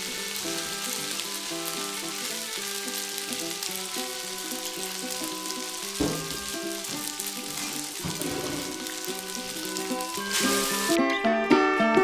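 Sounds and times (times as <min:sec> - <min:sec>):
food sizzling in a frying pan: 0:00.0 - 0:11.0
background music: 0:00.0 - 0:12.0
knock: 0:06.0 - 0:06.6, 0:08.0 - 0:08.8.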